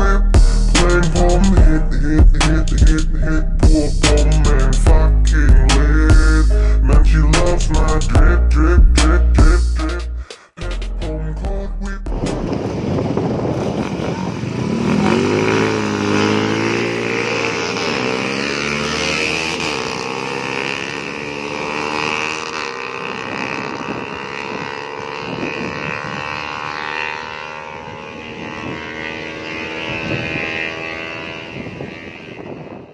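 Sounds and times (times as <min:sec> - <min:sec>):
small motorcycle engines revving: 0:12.1 - 0:32.9.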